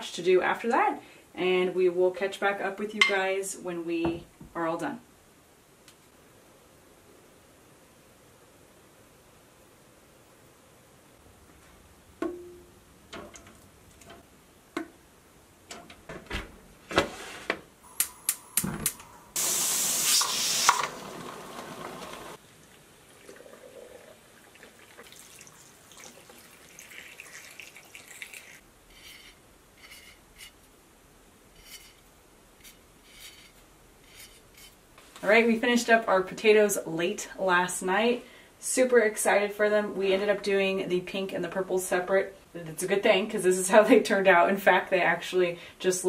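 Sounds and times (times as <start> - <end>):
water pouring into jars: 19.4 - 28.6
marker scratching on metal lid: 28.9 - 30.6.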